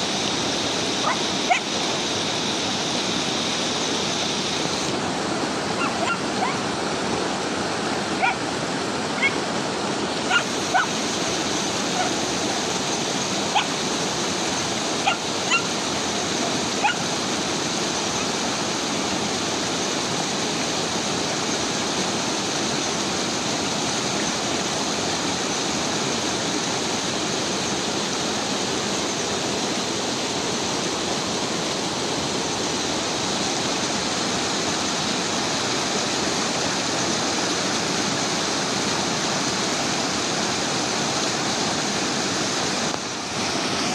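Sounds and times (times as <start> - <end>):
river running over stones: 0.0 - 43.9
puppy yelping: 1.0 - 1.7, 5.8 - 6.6, 8.2 - 8.4, 9.2 - 9.4, 10.3 - 11.0, 11.9 - 12.2, 13.5 - 13.7, 15.0 - 15.7, 16.8 - 17.1.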